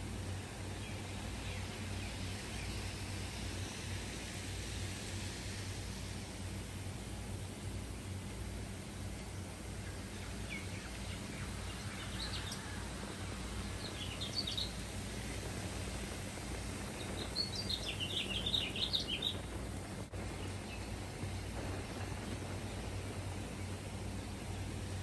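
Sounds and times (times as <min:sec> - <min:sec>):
bird chirps: 0:17.0 - 0:19.5.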